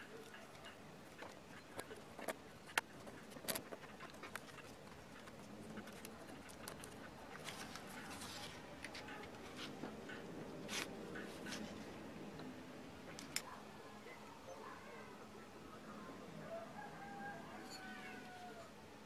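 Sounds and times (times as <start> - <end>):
paper rustling: 6.6 - 9.8.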